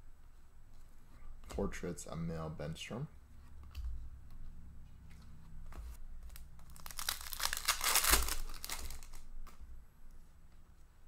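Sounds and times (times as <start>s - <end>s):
plastic wrapper tearing and crinkling: 6.3s - 9.3s.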